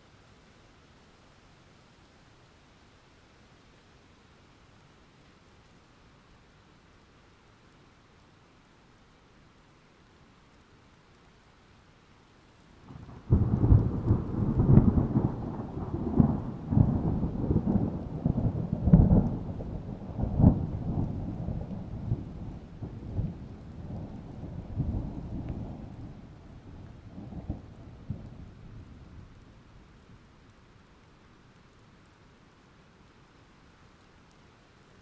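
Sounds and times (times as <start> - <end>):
thunder cracking and rumbling: 12.9 - 29.4.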